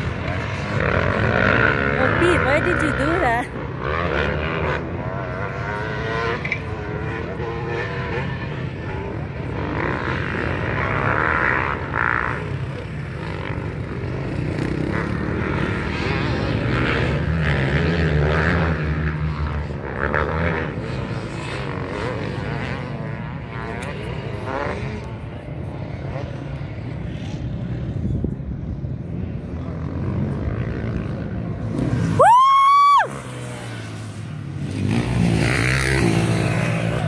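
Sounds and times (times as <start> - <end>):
distant dirt bike engines revving: 0.0 - 37.0.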